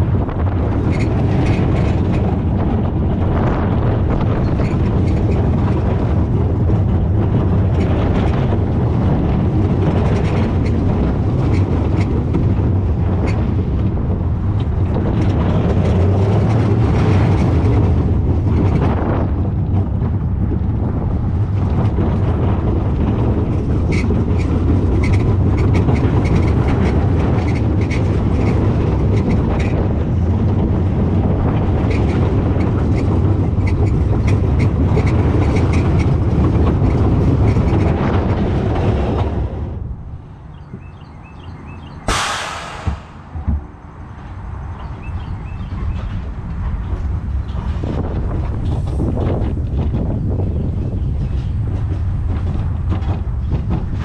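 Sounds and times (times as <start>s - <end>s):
roller coaster wheels rumbling: 0.0s - 54.0s.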